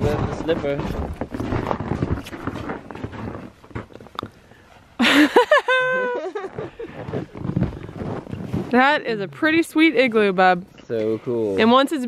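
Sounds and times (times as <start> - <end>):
footsteps crunching in snow: 0.0 - 4.1, 6.4 - 9.6.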